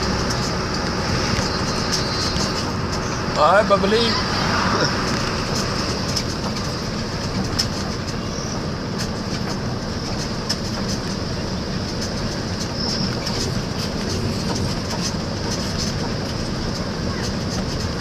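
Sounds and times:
vehicle driving on paved road: 0.0 - 18.0
light clicks and rattles: 5.0 - 18.0.

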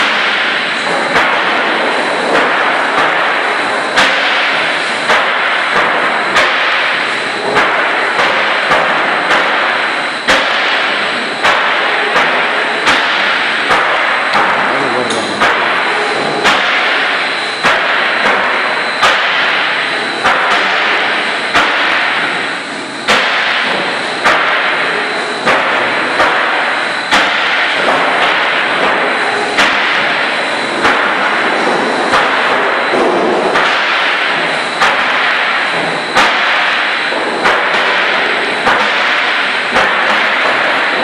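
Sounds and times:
clattering grinding noise: 0.0 - 22.3
machinery sharp bang: 0.0 - 22.5
steady high whine: 0.0 - 41.0.

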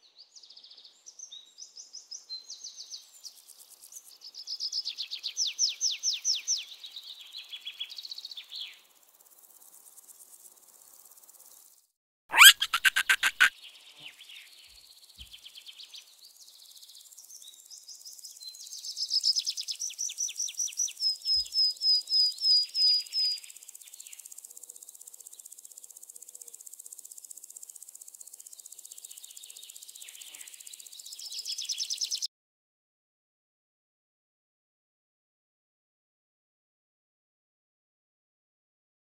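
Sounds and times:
insects trilling: 8.1 - 11.8, 12.4 - 13.5, 23.0 - 32.2
bird chirping: 12.3 - 13.5.

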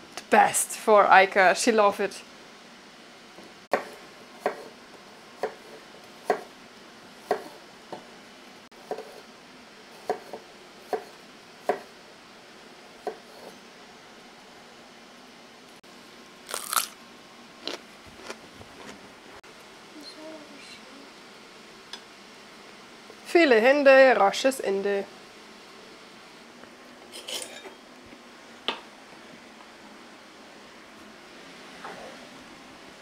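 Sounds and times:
knife cutting on board: 8.8 - 9.3.

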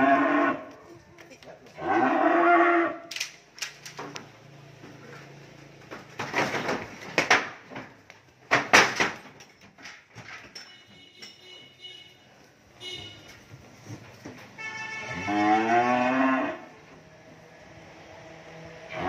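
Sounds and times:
cow mooing: 0.0 - 0.7, 1.8 - 3.0, 15.0 - 16.7
sharp knocks and clatters: 5.6 - 11.7.

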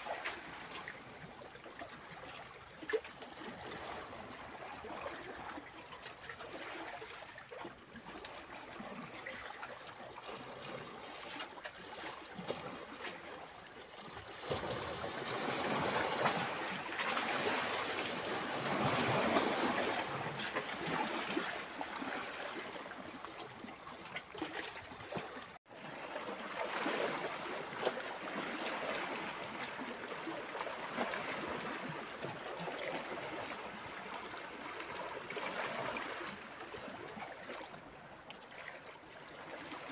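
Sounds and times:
waves splashing against rocks: 14.4 - 37.2.

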